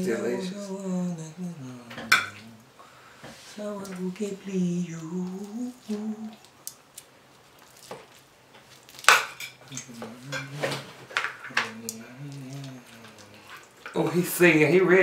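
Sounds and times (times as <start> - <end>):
person humming quietly: 0.0 - 2.8, 3.5 - 6.5, 9.7 - 13.5.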